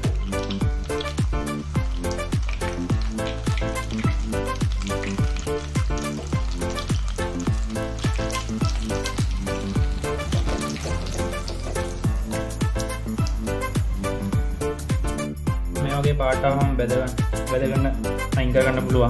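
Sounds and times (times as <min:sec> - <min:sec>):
hot oil sizzling: 0:00.0 - 0:18.4
background music with drum beat: 0:00.0 - 0:19.0.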